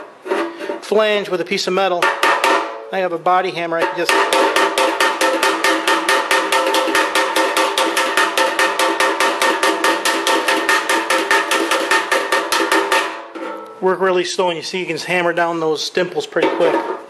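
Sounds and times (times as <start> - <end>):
hammer tapping metal: 2.0 - 2.9, 3.8 - 13.8.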